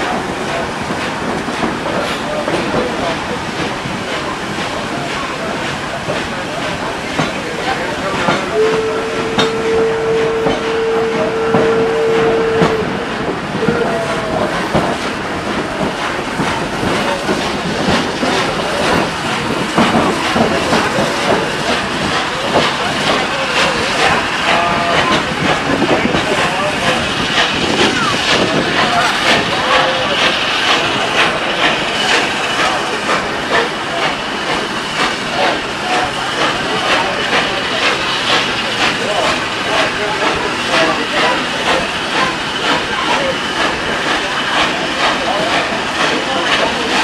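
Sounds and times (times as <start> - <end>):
train rumbling on track: 0.0 - 47.0
train whistle: 8.5 - 13.0.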